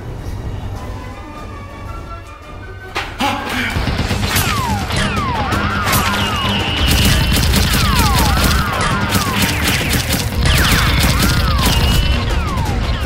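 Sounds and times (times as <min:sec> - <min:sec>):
background music: 0:00.0 - 0:13.0
rapid gunfire: 0:03.6 - 0:13.0.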